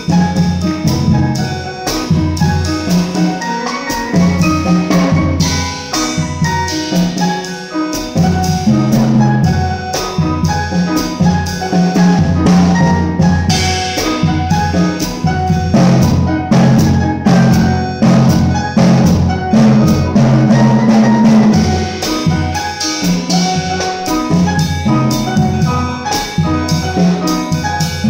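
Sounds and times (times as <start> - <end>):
walking bass line: 0.0 - 3.3
drum kit with cymbals: 0.0 - 28.0
piano chords: 0.0 - 28.0.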